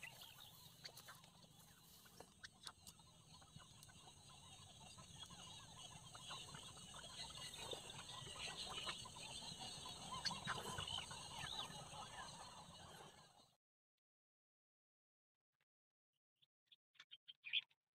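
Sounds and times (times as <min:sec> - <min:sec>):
ducks calling: 0:00.0 - 0:13.2.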